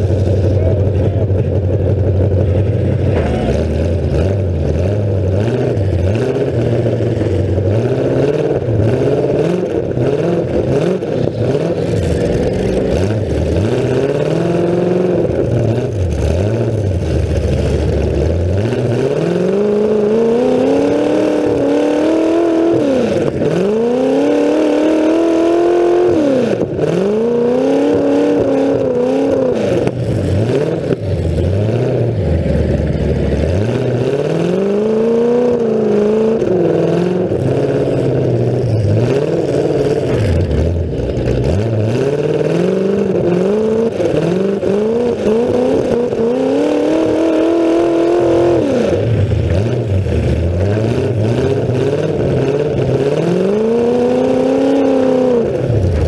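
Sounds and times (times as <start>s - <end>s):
car engine revving through open exhaust: 0.0s - 56.0s.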